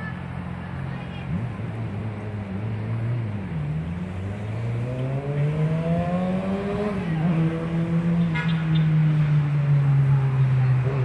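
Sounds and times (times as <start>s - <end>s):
motor engine speeding up: 1.3s - 8.3s.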